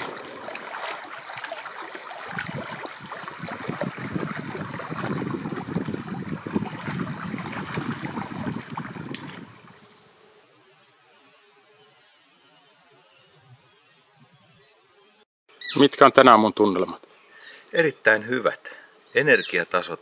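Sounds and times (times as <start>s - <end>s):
waves lapping against rocks: 0.0s - 9.9s.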